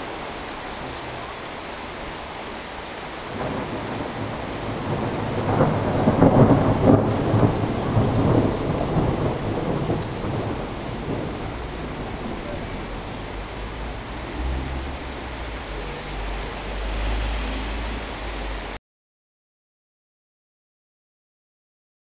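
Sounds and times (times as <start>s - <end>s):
heavy rain falling: 0.0s - 18.8s
thunder rolling: 3.2s - 18.1s.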